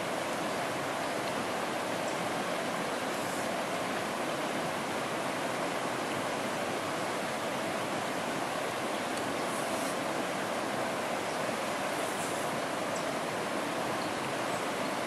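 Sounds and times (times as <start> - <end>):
stream rushing over stones: 0.0 - 15.0.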